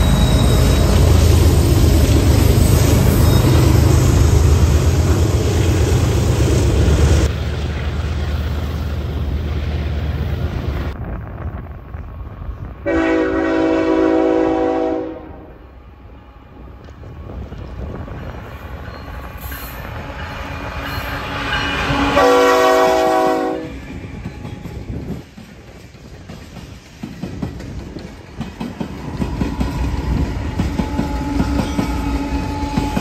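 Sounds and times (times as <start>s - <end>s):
diesel locomotive engines: 0.0s - 33.0s
locomotive air horn blast: 12.8s - 15.6s, 21.4s - 23.8s.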